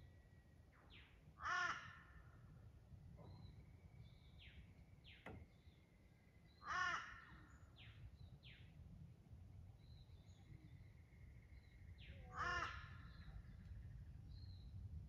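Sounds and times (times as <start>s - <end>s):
harsh crow-like caw: 1.4s - 2.2s, 6.6s - 7.4s, 12.3s - 13.1s.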